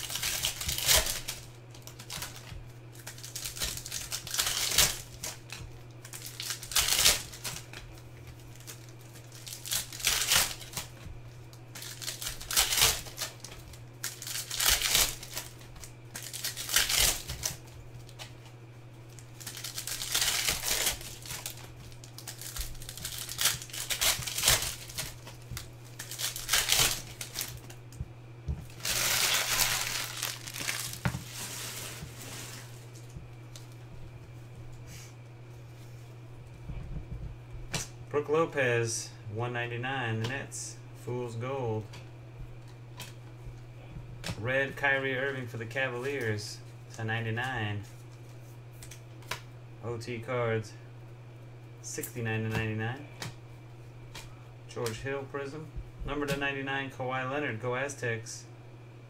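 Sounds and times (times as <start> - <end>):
card wrappers crinkling and tearing: 0.0 - 18.4, 19.0 - 27.8, 28.6 - 33.8
steady low hum: 0.0 - 59.0.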